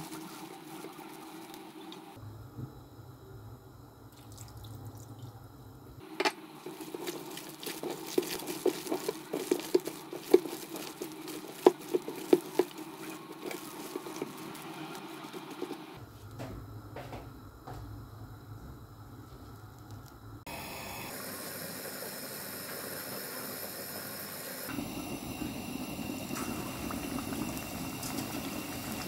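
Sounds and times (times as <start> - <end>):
hands squelching wet batter: 6.6 - 16.0.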